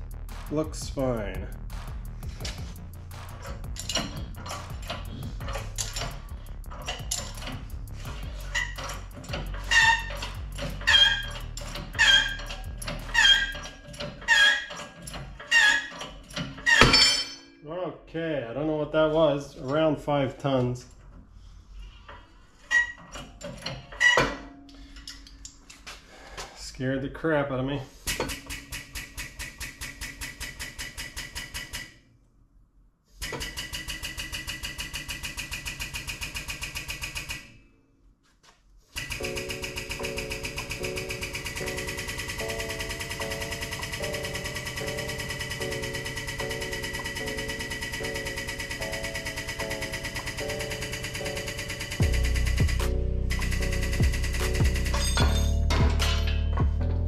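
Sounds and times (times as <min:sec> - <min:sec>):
pneumatic pump rapid strokes: 0:02.1 - 0:17.0, 0:28.0 - 0:31.9, 0:33.2 - 0:37.5, 0:38.9 - 0:55.4
hydraulic press squealing: 0:03.3 - 0:17.4, 0:22.1 - 0:24.6, 0:39.0 - 0:56.5.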